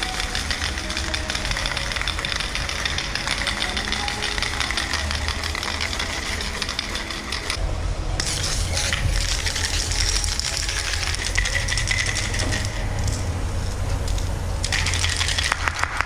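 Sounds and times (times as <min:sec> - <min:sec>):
spray paint can hissing: 0:00.0 - 0:07.6, 0:08.2 - 0:16.0
low rumble: 0:05.3 - 0:15.6.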